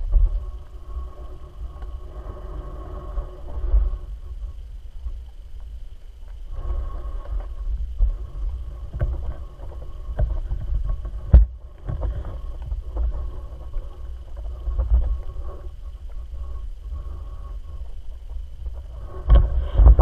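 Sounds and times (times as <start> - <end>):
muffled underwater rumble: 0.0 - 20.0.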